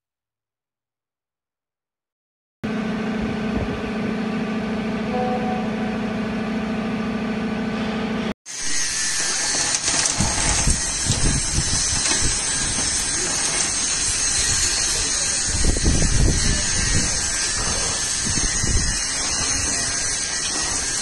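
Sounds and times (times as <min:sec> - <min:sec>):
low machine rumbles: 0:02.7 - 0:08.3
block-making machine humming: 0:02.7 - 0:21.0
belt conveyor running: 0:08.5 - 0:21.0.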